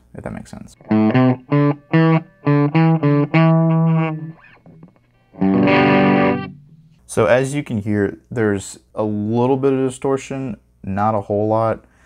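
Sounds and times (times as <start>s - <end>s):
lightly distorted electric guitar: 0.7s - 7.5s.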